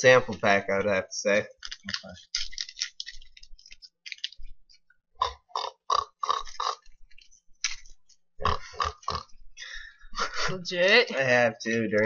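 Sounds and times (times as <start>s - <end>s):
person oinking like a pig: 5.2s - 6.8s, 8.4s - 9.3s.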